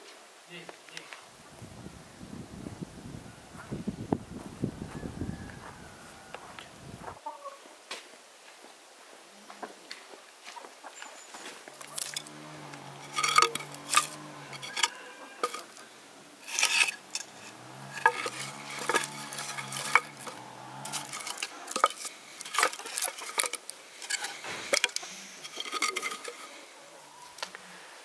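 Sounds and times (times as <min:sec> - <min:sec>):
sticks of firewood clattering: 0:11.4 - 0:26.7.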